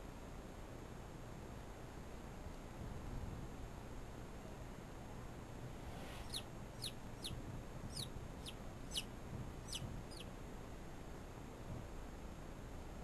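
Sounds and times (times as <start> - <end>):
chick peeping: 6.0 - 10.3.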